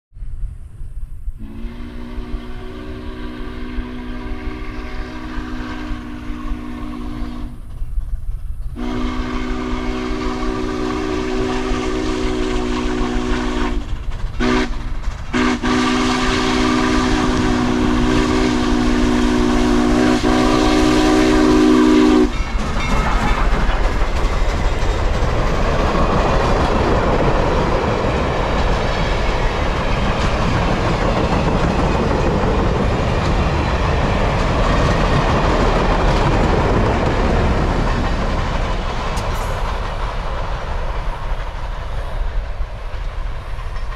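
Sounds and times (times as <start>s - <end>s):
steam locomotive whistle: 1.4s - 7.7s, 8.8s - 23.4s
train wheels clickety-clack: 6.9s - 43.9s.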